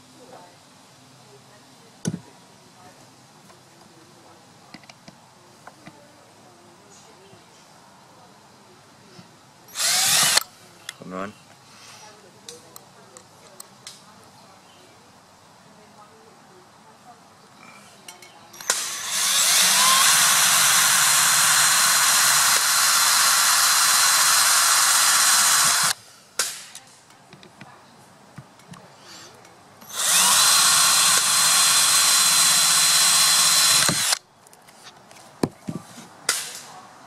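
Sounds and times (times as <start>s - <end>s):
cordless drill driving screw: 9.7s - 10.4s, 18.6s - 26.0s, 29.8s - 34.2s.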